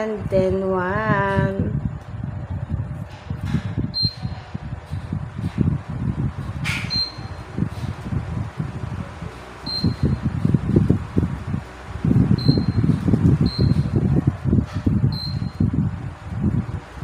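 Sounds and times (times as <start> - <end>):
fan airflow buffeting microphone: 0.0 - 17.0
short high beeps: 9.7 - 10.1.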